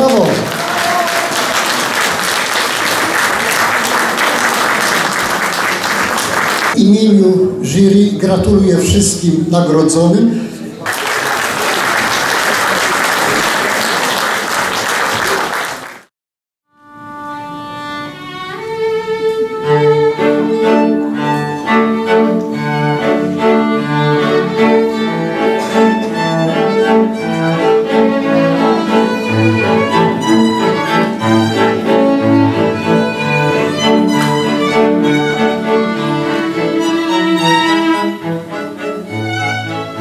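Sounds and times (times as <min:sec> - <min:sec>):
audience applauding: 0:00.0 - 0:06.8, 0:10.8 - 0:16.1, 0:32.8 - 0:35.4
string trio playing: 0:16.8 - 0:40.0.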